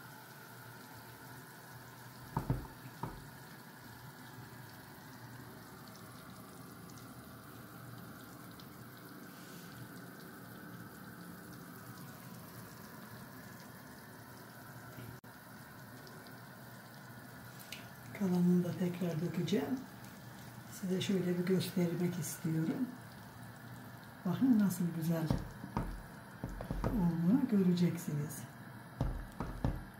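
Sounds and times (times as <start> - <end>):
soup bubbling in a pot: 0.0 - 27.6, 28.5 - 29.9
light knocks: 2.3 - 3.3, 29.0 - 29.9.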